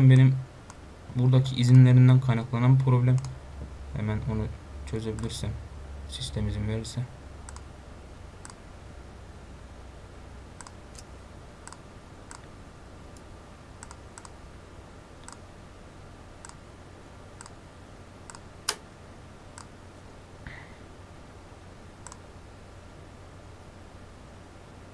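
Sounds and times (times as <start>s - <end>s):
faint low hum: 0.0s - 24.9s
computer mouse clicking: 2.8s - 3.4s, 7.5s - 7.7s, 10.6s - 12.5s, 13.2s - 14.4s, 15.2s - 15.4s, 18.3s - 18.8s, 22.0s - 22.2s.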